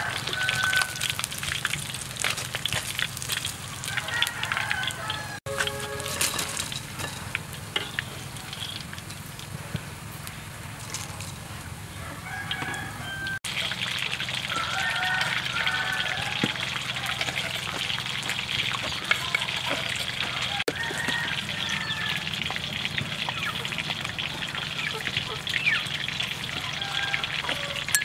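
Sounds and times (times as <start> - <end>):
chickens clucking: 3.8 - 9.0, 11.1 - 28.0.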